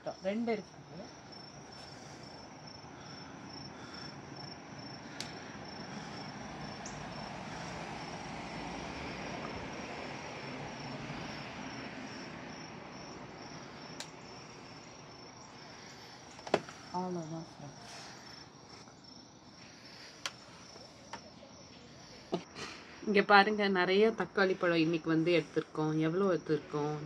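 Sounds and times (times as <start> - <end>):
insects chirping trill: 0.0 - 27.0
broad rushing noise: 5.0 - 12.9
scissors snipping stems: 5.1 - 5.4, 13.9 - 14.2.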